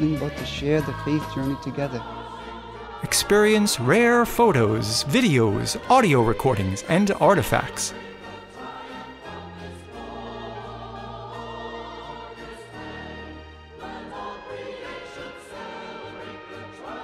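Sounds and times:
choir singing held notes: 0.0 - 17.0
low accompanying notes: 3.0 - 8.4.

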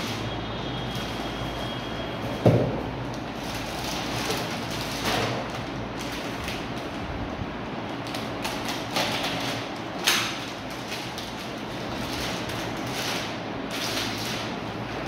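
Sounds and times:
wrapping rustling and crinkling: 3.1 - 7.0, 7.9 - 15.0.

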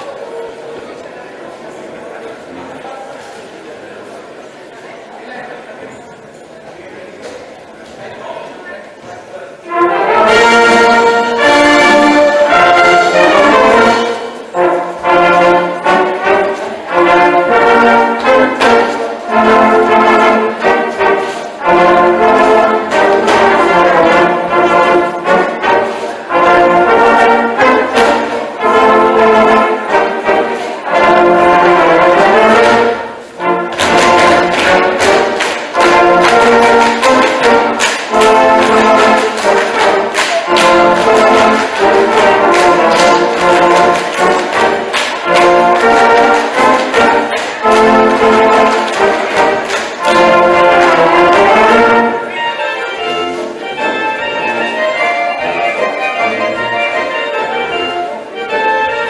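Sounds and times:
brass band playing folk dance tune: 9.6 - 59.0.

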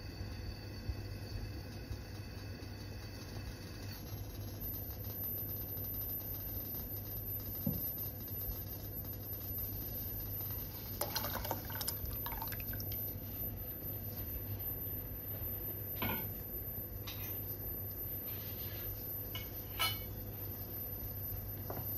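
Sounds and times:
wine bubbling in a saucepan: 0.0 - 21.6
juice poured splashing and crackling: 10.4 - 13.2.

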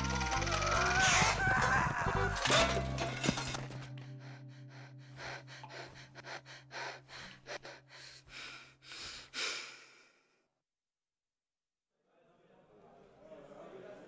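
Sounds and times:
person gasping for breath: 3.8 - 10.5.

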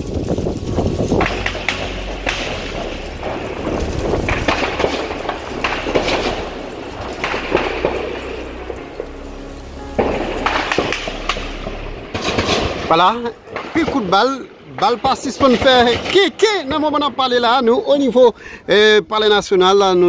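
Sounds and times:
steady low rumble: 0.0 - 17.6
gunshots with echo: 1.2 - 8.7.

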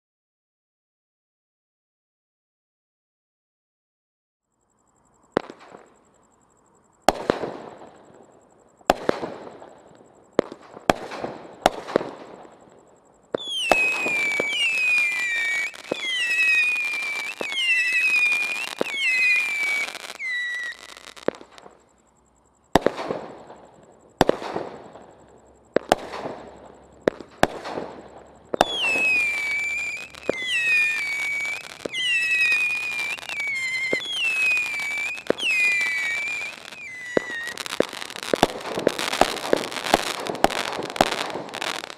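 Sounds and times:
firework launch pops: 5.4 - 6.0, 13.3 - 21.8, 22.7 - 41.9
firework whistles: 7.1 - 41.9.

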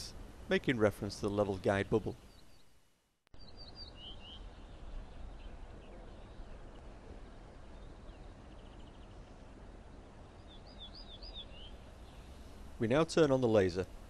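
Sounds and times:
outdoor background noise: 0.0 - 14.0
small bird chirping: 3.4 - 6.8, 10.4 - 12.4.

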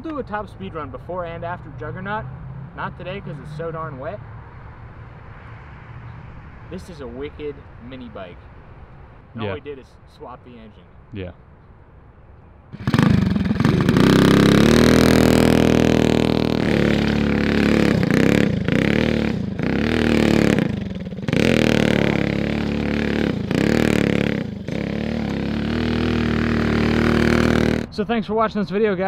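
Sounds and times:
mini bike engine revving: 12.8 - 27.9.

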